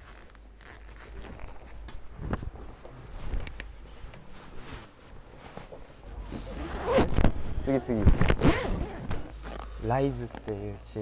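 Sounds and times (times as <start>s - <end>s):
leather jacket rustling and creaking: 0.0s - 11.0s.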